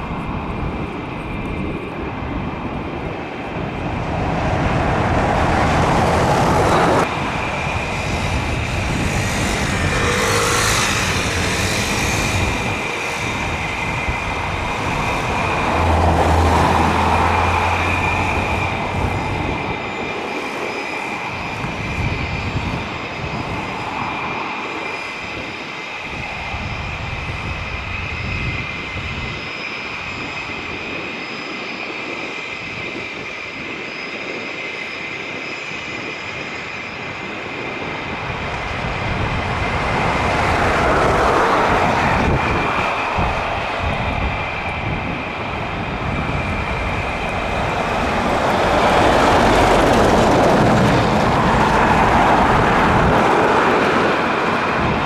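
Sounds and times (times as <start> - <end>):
jet engines whining and roaring: 0.0 - 55.0.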